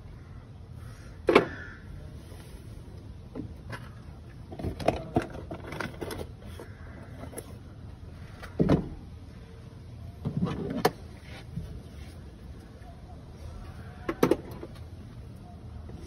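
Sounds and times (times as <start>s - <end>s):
knocks and clunks: 8.4s - 9.1s.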